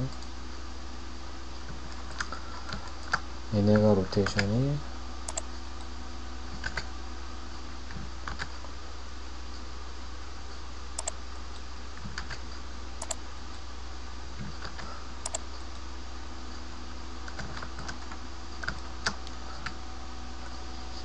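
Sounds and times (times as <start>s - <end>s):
steady low hum: 0.0s - 21.0s
mouse and keyboard clicks: 5.3s - 5.5s, 11.0s - 11.2s, 13.0s - 13.2s, 14.4s - 15.5s.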